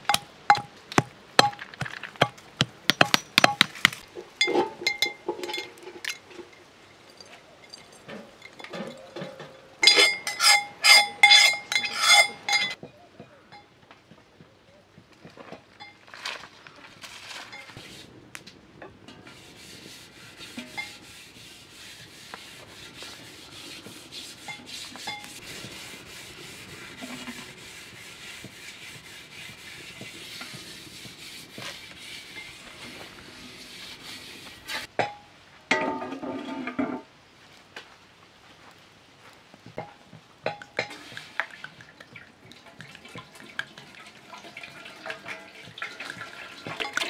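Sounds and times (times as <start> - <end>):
stone pot scraping on metal: 8.1 - 12.8, 19.1 - 34.9, 40.8 - 41.8
hands rubbing stone pot: 19.2 - 34.9.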